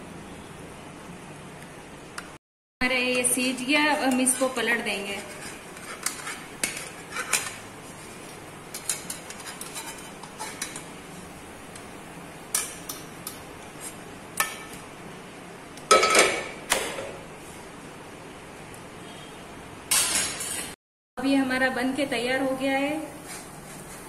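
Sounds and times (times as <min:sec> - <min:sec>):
metal spatula scraping frying pan: 0:04.0 - 0:11.3, 0:23.1 - 0:24.0.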